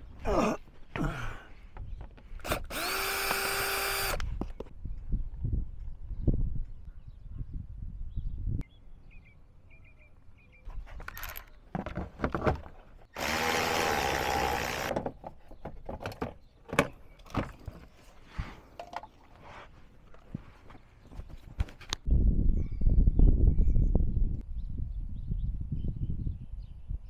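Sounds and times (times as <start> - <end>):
cordless power tool running: 2.4 - 4.3, 13.1 - 14.9.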